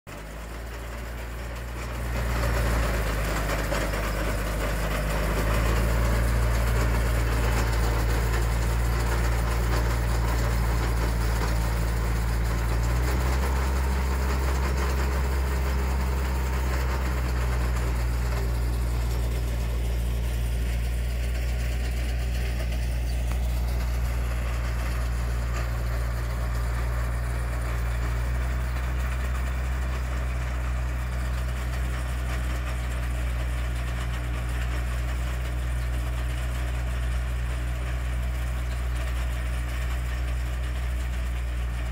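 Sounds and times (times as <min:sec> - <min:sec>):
tractor engine running under load: 0:00.1 - 0:41.9.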